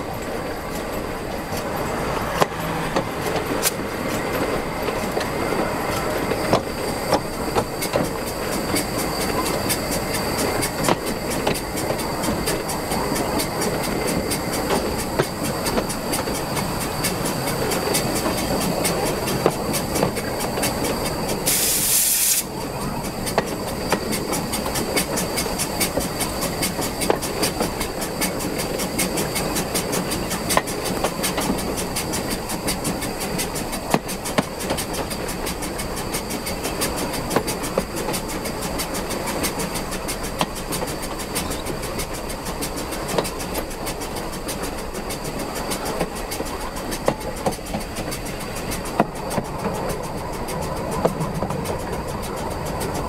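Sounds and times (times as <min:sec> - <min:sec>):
train running rumble: 0:00.0 - 0:53.0
train wheels clicking on rail joints: 0:00.0 - 0:53.0.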